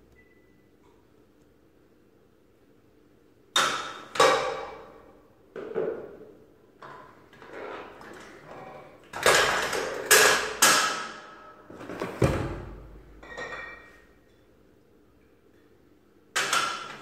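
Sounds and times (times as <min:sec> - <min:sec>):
glassy clink: 0:13.2 - 0:14.0.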